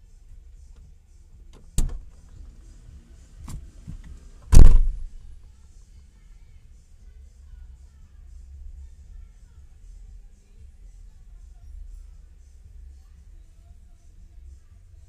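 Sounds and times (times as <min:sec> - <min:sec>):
low steady rumble: 0:00.0 - 0:15.0
knocks and clunks inside car: 0:01.6 - 0:02.2, 0:03.4 - 0:05.2
loud thump: 0:04.5 - 0:05.3.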